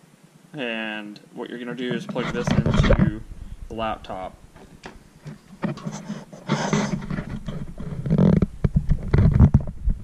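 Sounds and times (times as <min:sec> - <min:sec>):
handling knocks and rubbing: 0:01.8 - 0:10.0
low rough rumble: 0:02.4 - 0:04.6.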